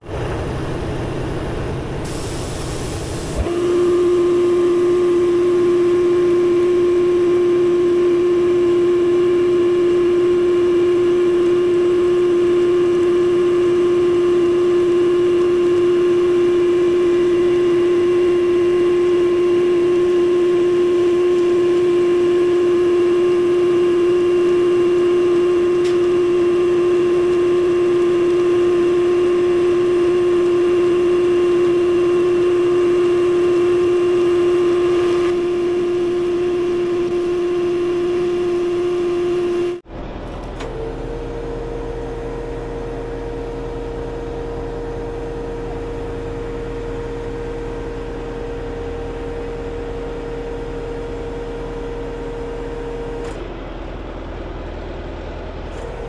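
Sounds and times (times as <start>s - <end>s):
truck engine running: 0.0s - 56.0s
winch whine: 0.0s - 56.0s.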